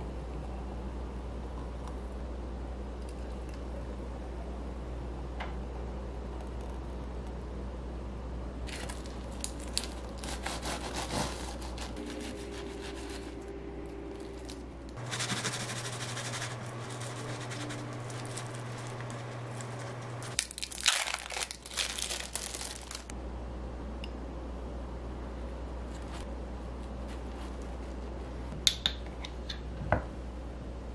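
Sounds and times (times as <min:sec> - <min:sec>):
plastic film crinkling: 0:08.7 - 0:13.4, 0:14.1 - 0:23.1
bread knife sawing crust: 0:10.2 - 0:13.4, 0:15.0 - 0:18.4
rustling: 0:14.1 - 0:23.1.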